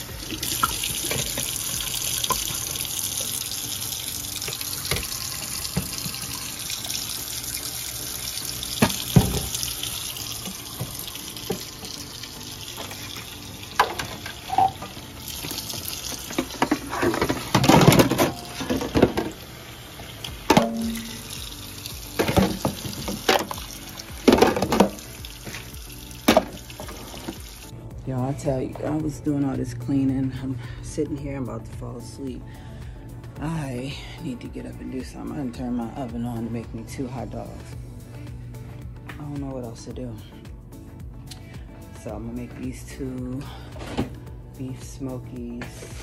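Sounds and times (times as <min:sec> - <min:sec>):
tap running into steel sink: 0:04.4 - 0:06.2, 0:08.8 - 0:09.7
plastic dishes clattering: 0:16.3 - 0:19.4, 0:22.2 - 0:23.6, 0:24.2 - 0:25.0.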